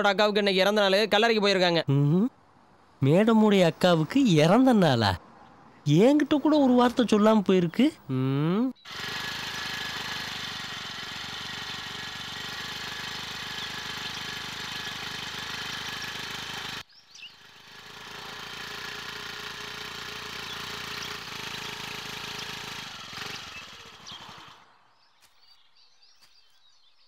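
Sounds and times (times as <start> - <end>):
scooter engine running: 8.8 - 24.7.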